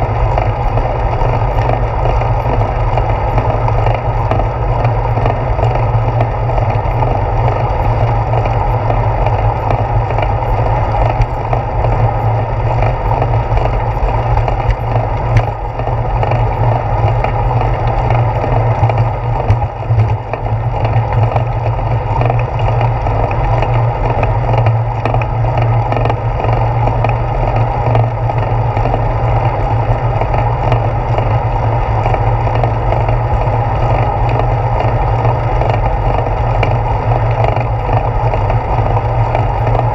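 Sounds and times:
bicycle road rumble: 0:00.0 - 0:39.9.

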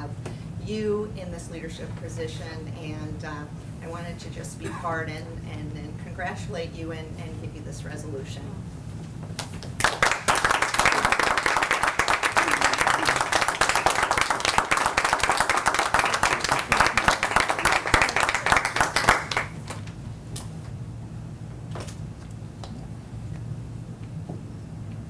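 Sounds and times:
group applauding: 0:09.4 - 0:19.9.

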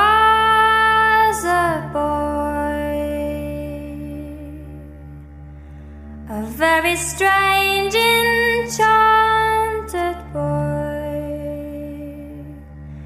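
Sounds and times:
woman singing slow melody: 0:00.0 - 0:05.2, 0:06.3 - 0:12.8
steady low drone: 0:00.0 - 0:13.0.

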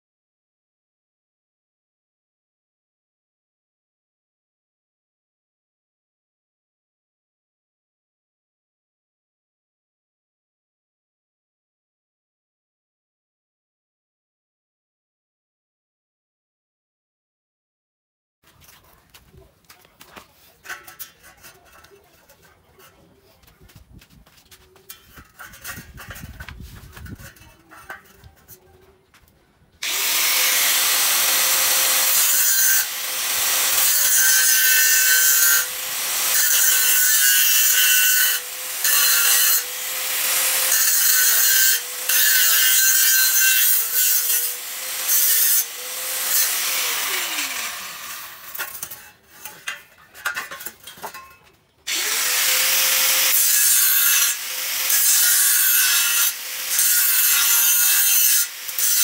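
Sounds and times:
angle grinder grinding steel tube: 0:20.5 - 0:23.3, 0:24.8 - 0:28.8, 0:29.8 - 0:59.0.

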